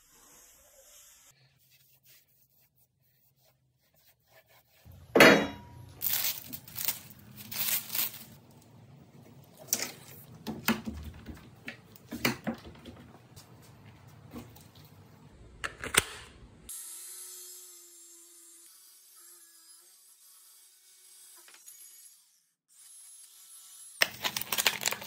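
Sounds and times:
plastic film crinkling and tearing: 6.0 - 8.6, 24.0 - 25.0.

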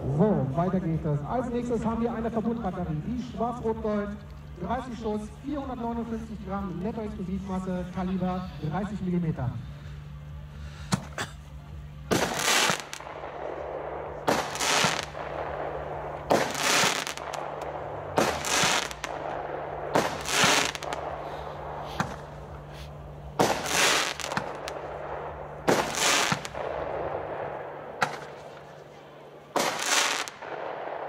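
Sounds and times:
fireworks shots bursting: 11.8 - 31.0.

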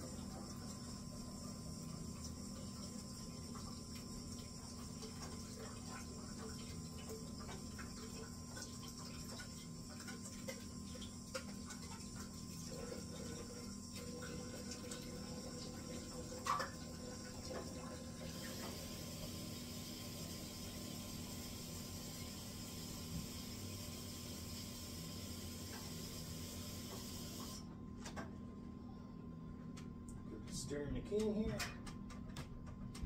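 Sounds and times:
steady low hum: 27.6 - 33.0.

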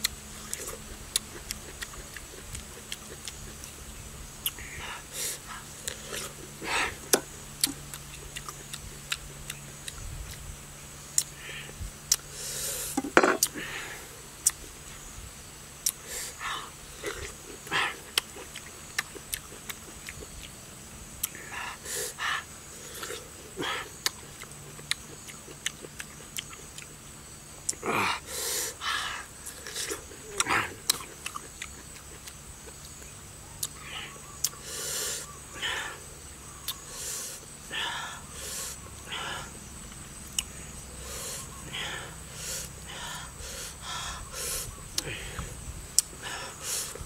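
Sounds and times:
open-mouthed eating sounds: 0.0 - 15.1, 15.8 - 47.0
breathy puffs of breath: 11.3 - 14.2, 33.8 - 36.1, 36.8 - 39.6, 40.6 - 47.0.

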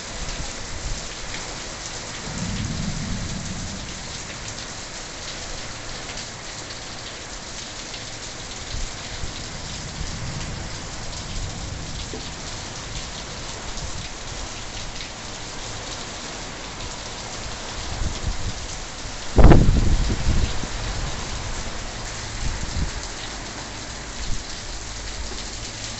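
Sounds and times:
heavy rain pouring: 0.0 - 25.9
low bumps: 2.2 - 5.8
low rumble: 2.2 - 6.1.

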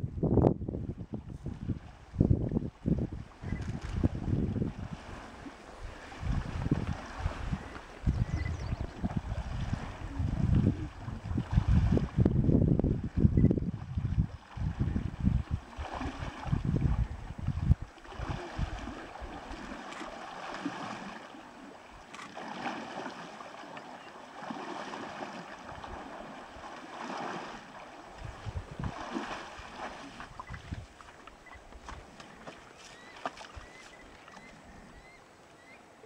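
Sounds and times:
wind buffeting microphone: 0.0 - 19.8, 28.1 - 32.2
water swishing around wading bear: 0.8 - 36.0
bear splashing out of water: 22.1 - 23.4, 24.4 - 30.8.

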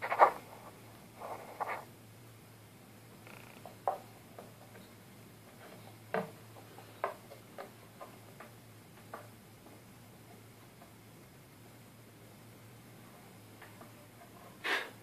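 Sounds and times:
faint low hum: 0.0 - 15.0
light clicks and taps: 5.5 - 11.0.

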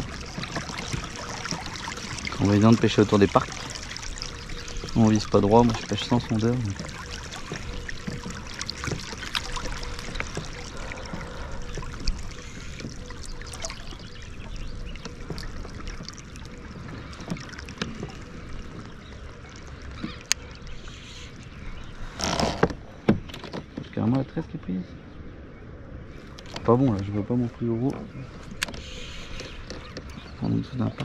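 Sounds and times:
water lapping against kayak hull: 0.0 - 24.6, 26.0 - 31.0
light clicks and knocks: 27.8 - 31.0.

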